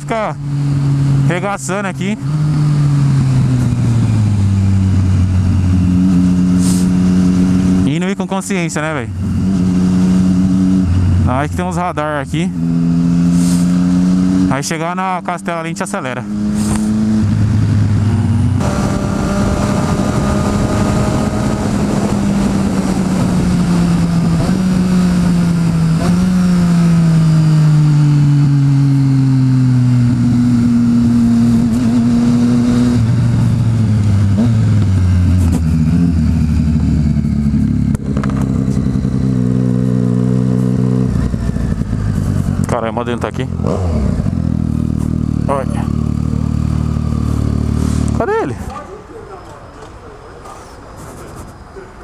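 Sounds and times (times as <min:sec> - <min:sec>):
motorcycle engine slowing: 0:00.4 - 0:14.6, 0:16.3 - 0:51.1
wind rush: 0:16.4 - 0:26.4.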